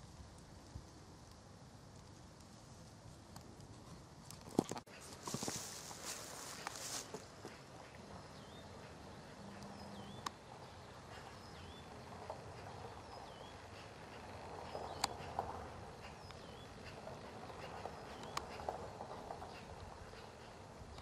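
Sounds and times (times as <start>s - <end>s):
bird calling: 4.9s - 21.0s.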